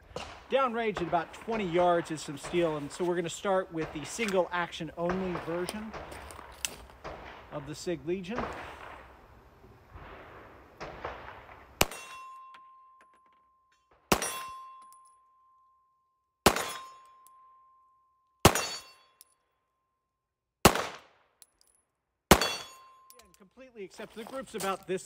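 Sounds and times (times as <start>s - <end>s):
pistol shots: 0.1s - 9.1s, 10.8s - 12.4s, 14.1s - 14.7s, 16.4s - 17.0s, 18.4s - 19.0s, 20.6s - 21.2s, 22.3s - 22.9s
struck steel plate ringing: 11.8s - 13.4s, 14.1s - 15.2s, 16.5s - 19.3s, 22.3s - 23.5s.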